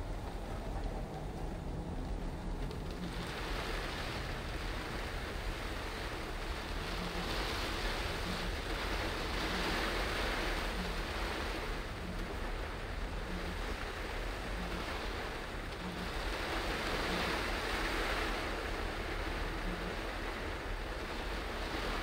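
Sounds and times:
heavy rain on car: 0.0 - 22.0
low road rumble: 0.0 - 22.0.

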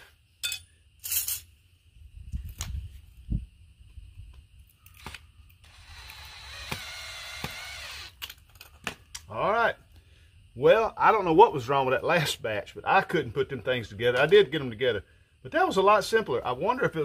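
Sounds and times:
small metal parts clinking: 0.4 - 1.5
cordless drill running: 5.6 - 8.2.

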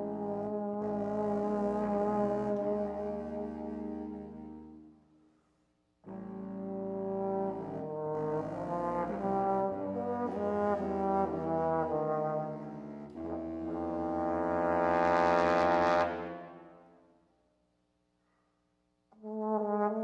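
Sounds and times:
trombone melody: 0.0 - 4.8, 6.0 - 16.8, 19.2 - 20.0.

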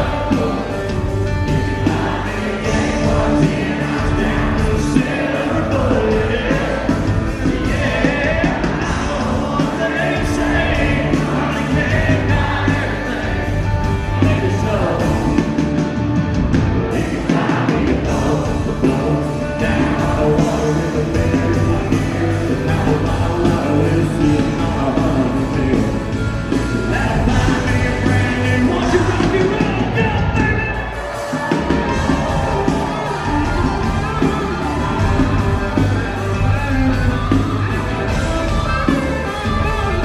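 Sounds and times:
man singing into a microphone: 0.0 - 1.0, 1.7 - 15.3, 16.9 - 30.9
live country band playing: 0.0 - 40.0.

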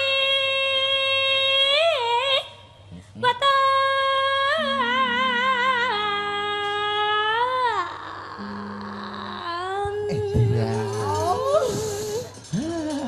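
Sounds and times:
woman singing long held notes: 3.2 - 13.0.

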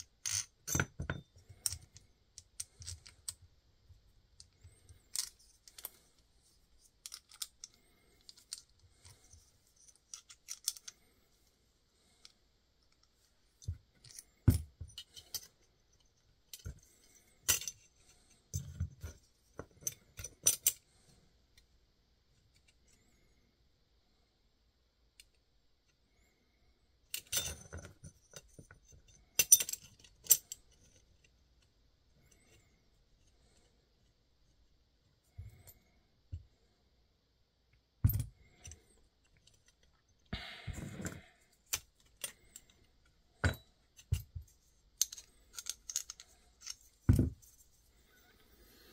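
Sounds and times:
small metal pieces clicking: 0.1 - 0.9, 4.4 - 6.0, 7.0 - 9.2, 9.8 - 11.0, 45.0 - 47.1.

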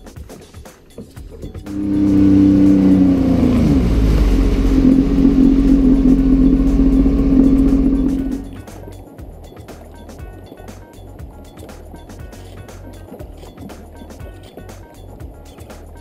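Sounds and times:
jet ski engine running: 1.1 - 8.8
water rushing past hull: 1.2 - 8.8.

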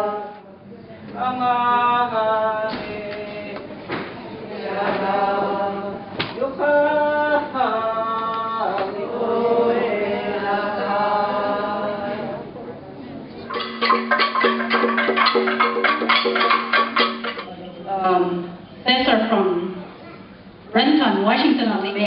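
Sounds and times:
voices chanting in unison: 4.5 - 6.1.

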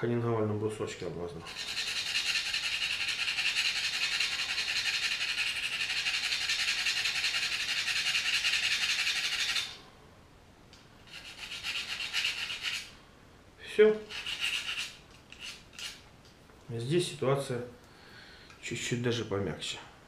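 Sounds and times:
knife scraping on honing stone: 1.5 - 9.8, 11.0 - 12.9, 14.0 - 16.0.

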